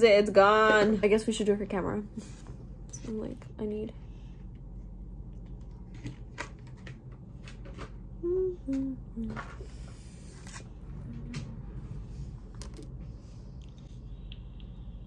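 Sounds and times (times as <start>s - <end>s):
person humming: 8.2s - 9.6s.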